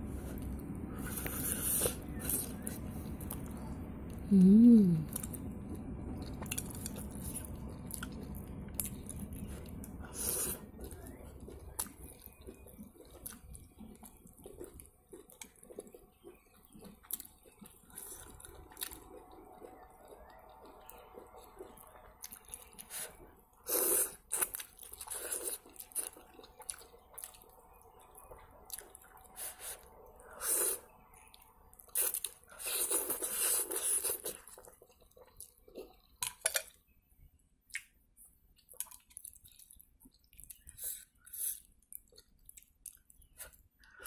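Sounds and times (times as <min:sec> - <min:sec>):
wet chewing and lip-smacking: 0:06.2 - 0:23.2, 0:37.6 - 0:44.0.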